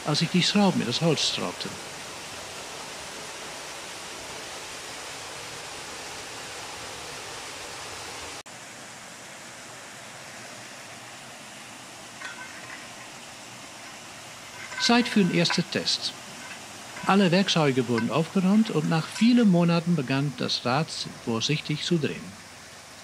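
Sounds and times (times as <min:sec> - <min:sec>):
water rushing into wheel pit: 0:11.0 - 0:23.0.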